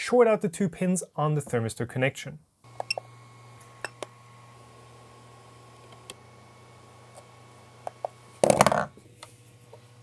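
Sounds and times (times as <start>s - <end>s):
sharp clicks of control knobs: 2.7s - 4.2s, 5.7s - 6.2s
low hum of printers: 2.7s - 10.0s.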